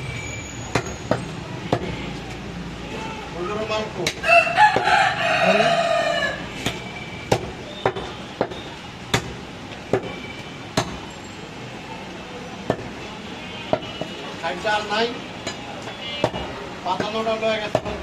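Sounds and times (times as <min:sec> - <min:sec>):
rooster crowing: 0:04.2 - 0:06.5
cleaver chopping on wooden block: 0:06.6 - 0:10.1, 0:10.8 - 0:11.0, 0:17.0 - 0:18.0.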